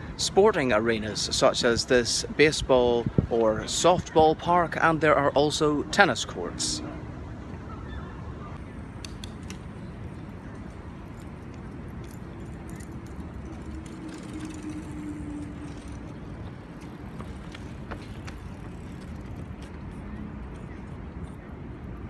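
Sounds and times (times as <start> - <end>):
road vehicles rumbling past: 0.0 - 22.0
light clicks and jingles: 10.0 - 15.9.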